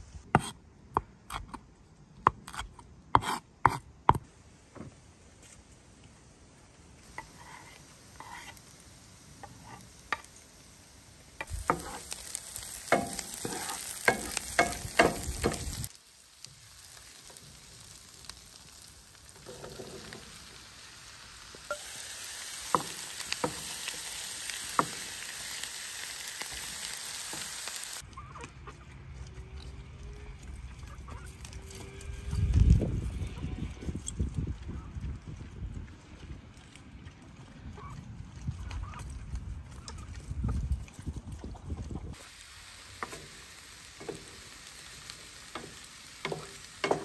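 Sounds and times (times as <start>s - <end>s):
onion sizzling in pan: 7.0s - 28.0s, 42.1s - 47.0s
wooden spoon knocking pan: 12.9s - 15.7s.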